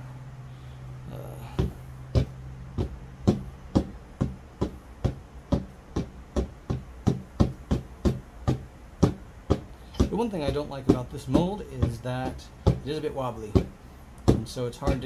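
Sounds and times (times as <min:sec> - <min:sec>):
mold knocking on tabletop: 0:01.6 - 0:15.0.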